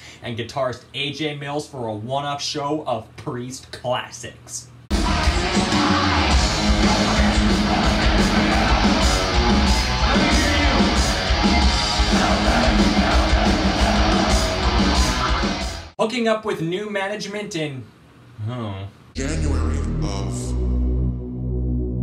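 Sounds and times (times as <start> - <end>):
person singing: 4.9 - 15.6, 19.2 - 20.8
heavy metal band playing live: 4.9 - 15.9.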